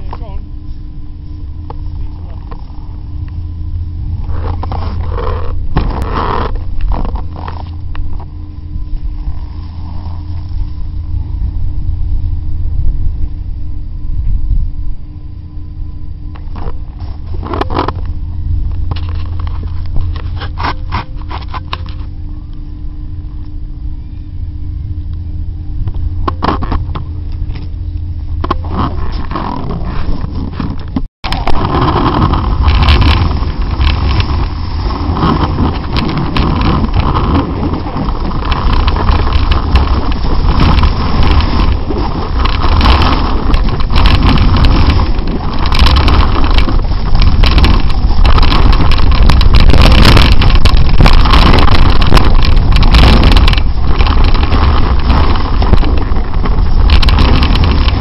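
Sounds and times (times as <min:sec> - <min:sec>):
wind rumble on microphone: 0:00.0 - 0:58.0
snowboard scraping on snow: 0:28.6 - 0:58.0.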